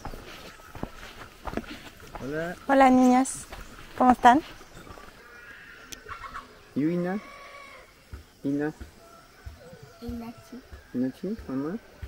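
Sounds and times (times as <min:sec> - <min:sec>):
footsteps on gravel: 0:00.0 - 0:05.2
faint outdoor background noise: 0:00.0 - 0:12.0.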